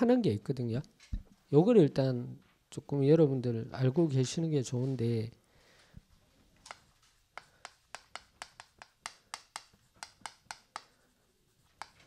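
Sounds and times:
chalk tapping on blackboard: 0:06.7 - 0:12.0.

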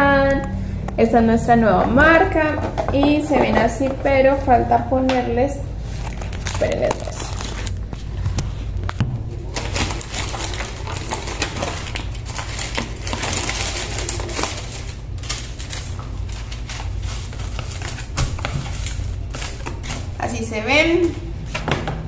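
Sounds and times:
steady low hum: 0:00.0 - 0:22.0
paperboard boxes rustling: 0:05.8 - 0:21.9.

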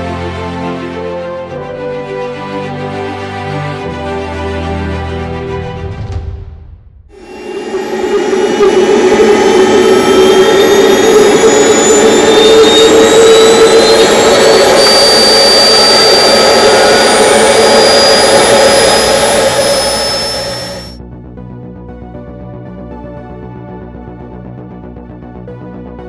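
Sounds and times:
turbine whine rising in pitch: 0:07.1 - 0:21.0
propeller drone: 0:07.2 - 0:21.0.

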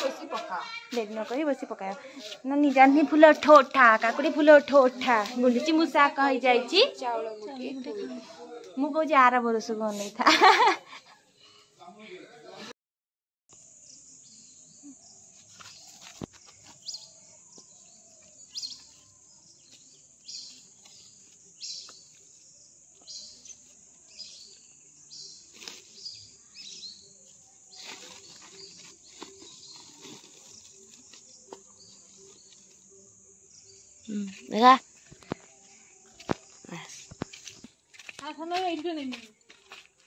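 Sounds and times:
plastic sack rustling: 0:27.6 - 0:32.8.

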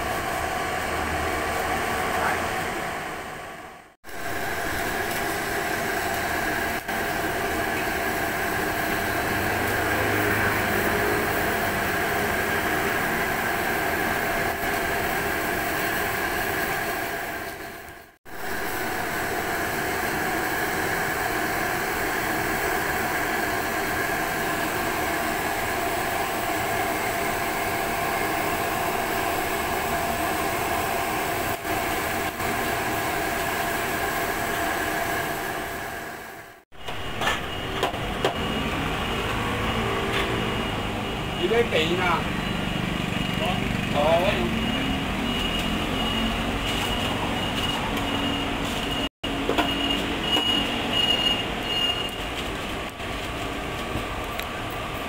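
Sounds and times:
food deep-frying in bubbling oil: 0:04.1 - 0:41.6.

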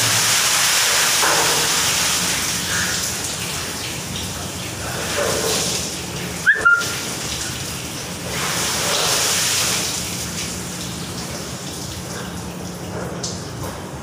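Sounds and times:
water running and splashing: 0:00.0 - 0:14.0.

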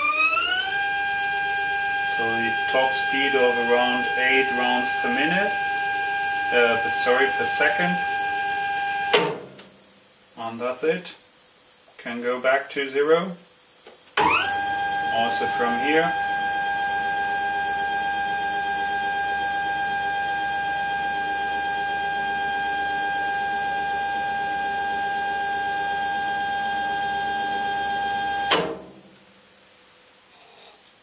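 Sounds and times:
stepper motor whine: 0:00.0 - 0:09.2, 0:14.2 - 0:29.0.

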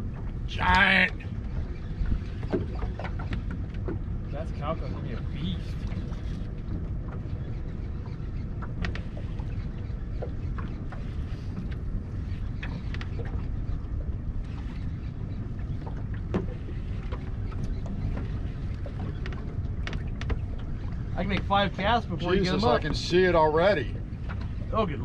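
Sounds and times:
water against boat: 0:00.0 - 0:25.0
wind rumble: 0:00.0 - 0:25.0.

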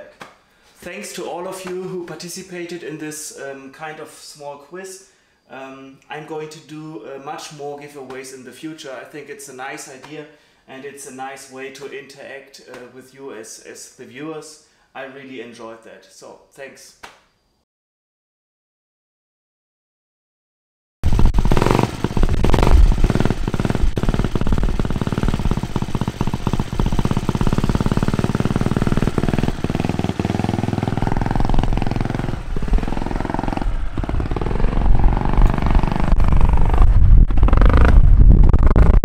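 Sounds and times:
rc car engine revving: 0:21.1 - 0:38.0.

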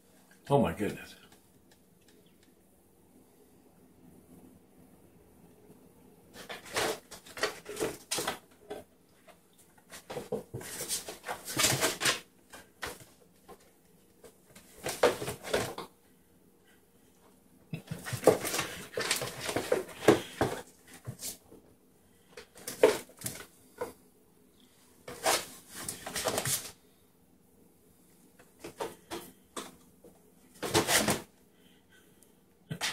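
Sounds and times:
kittens scratching cardboard box: 0:06.4 - 0:08.8, 0:09.8 - 0:13.6, 0:14.3 - 0:15.8, 0:17.8 - 0:21.4, 0:22.4 - 0:23.5, 0:25.1 - 0:26.8, 0:30.5 - 0:31.3.

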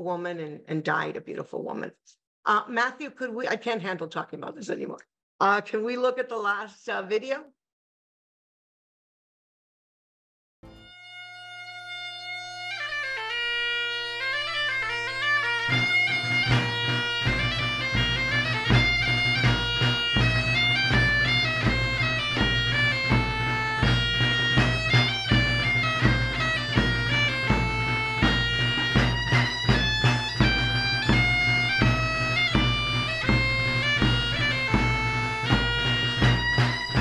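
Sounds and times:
bagpipe chanter melody: 0:10.7 - 0:37.0
bagpipe drone: 0:10.7 - 0:37.0
low drum beat: 0:16.1 - 0:37.0.

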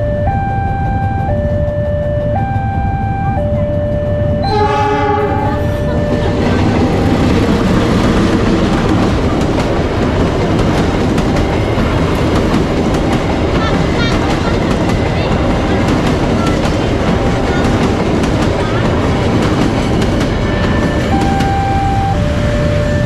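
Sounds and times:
level crossing alarm chimes: 0:00.0 - 0:07.2, 0:20.3 - 0:23.0
train horn: 0:04.4 - 0:06.0
train wheels clicking over rail joints: 0:05.7 - 0:21.5.

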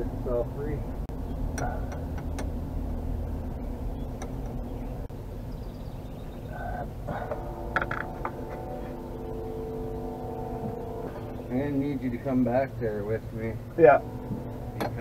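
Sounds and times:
low rumble: 0:00.0 - 0:15.0
steady multi-pitched hum: 0:00.0 - 0:15.0.

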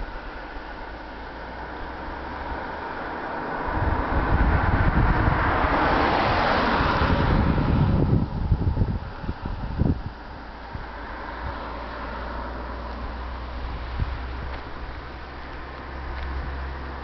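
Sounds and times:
car passing on road: 0:00.0 - 0:17.0
wind buffeting microphone: 0:03.6 - 0:12.1, 0:12.9 - 0:17.0.

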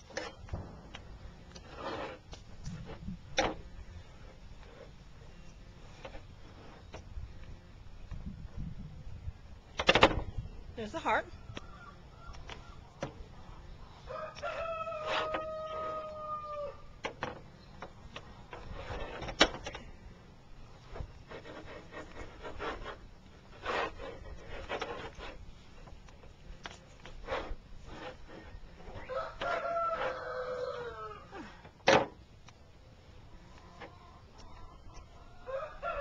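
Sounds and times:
clicks and rubbing sounds: 0:00.0 - 0:08.7, 0:11.0 - 0:13.6, 0:14.3 - 0:16.2, 0:17.0 - 0:20.0, 0:20.7 - 0:30.4
rooster crowing: 0:14.0 - 0:16.9, 0:29.0 - 0:31.4, 0:35.2 - 0:36.0.

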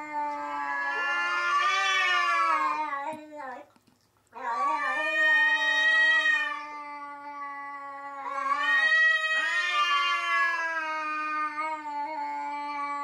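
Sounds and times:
cats yowling: 0:00.0 - 0:03.6, 0:04.4 - 0:13.0.

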